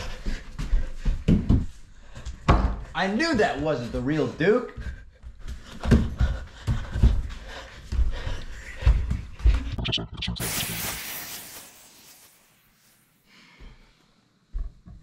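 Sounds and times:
loud hiss: 0:10.4 - 0:13.3.

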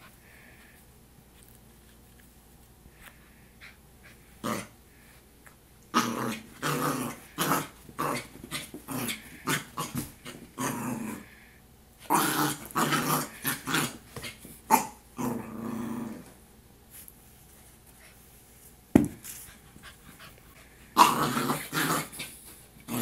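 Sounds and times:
puppy growling and barking: 0:05.9 - 0:11.3, 0:12.1 - 0:16.3, 0:20.9 - 0:23.0.

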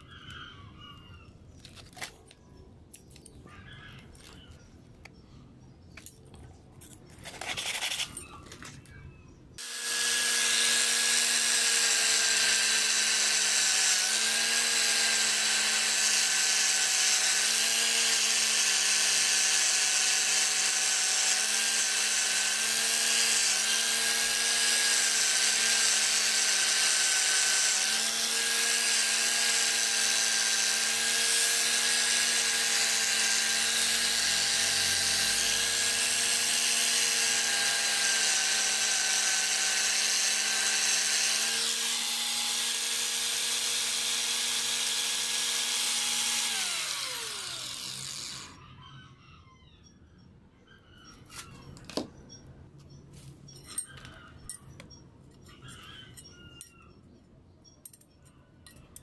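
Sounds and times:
angle grinder polishing metal: 0:09.6 - 0:48.6.

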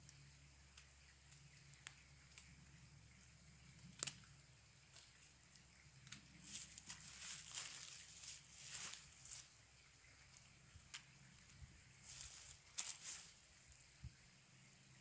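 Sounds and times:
footsteps in dry leaf litter: 0:06.4 - 0:13.9.

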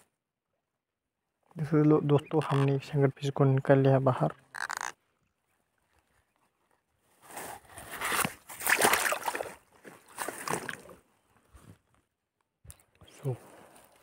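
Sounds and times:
water sloshing and splashing: 0:07.8 - 0:11.1.

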